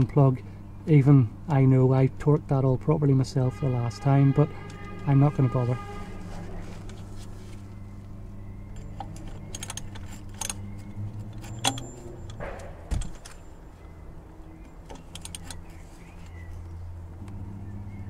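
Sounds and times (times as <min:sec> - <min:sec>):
metal tools clinking: 0:08.6 - 0:13.6.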